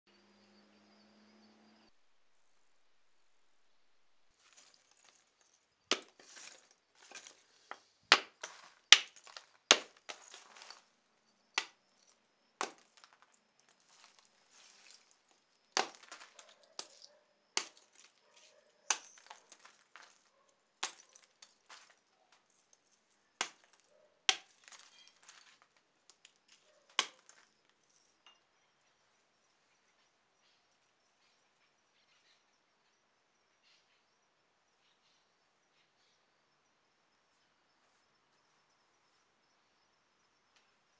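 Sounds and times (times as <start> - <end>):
fragments crunching and rattling: 4.4 - 10.9, 11.6 - 22.6, 23.4 - 27.5
charcoal being chopped: 5.9 - 10.8, 11.6 - 11.8, 12.6 - 15.1, 15.8 - 20.2, 20.8 - 22.0, 23.4 - 26.3, 26.9 - 27.4.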